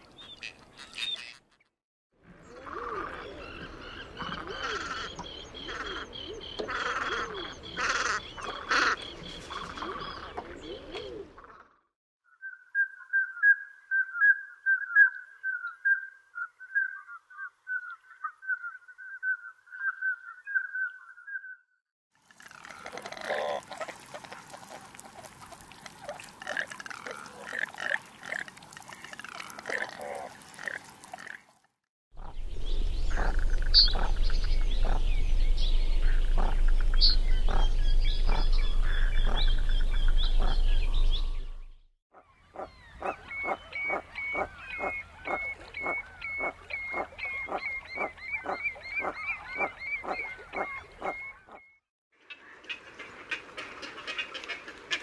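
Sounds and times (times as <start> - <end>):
ducks calling: 3.4 - 11.0, 32.2 - 41.6, 42.5 - 51.6
loud low rumble: 32.2 - 41.7.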